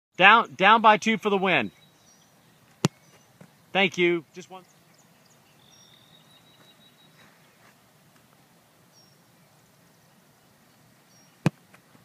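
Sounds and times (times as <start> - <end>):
faint bird chirps: 1.6 - 3.8, 4.4 - 7.7, 8.9 - 11.5
boot kicking a football: 2.8 - 3.5, 11.4 - 11.8.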